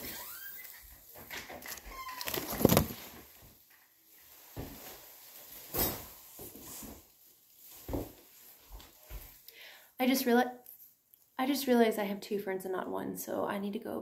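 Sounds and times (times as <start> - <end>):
short high squeaks: 0.0 - 0.9, 1.9 - 2.5.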